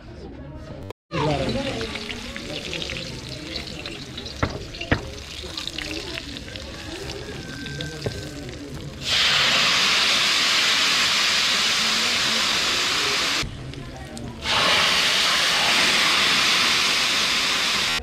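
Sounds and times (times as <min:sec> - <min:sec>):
boiling water pouring into pot: 0:01.2 - 0:13.4.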